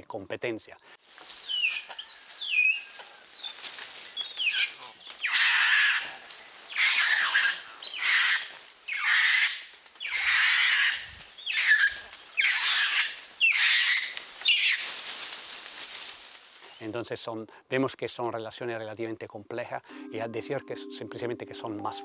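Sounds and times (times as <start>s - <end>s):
harsh rasping animal calls: 1.3s - 15.9s.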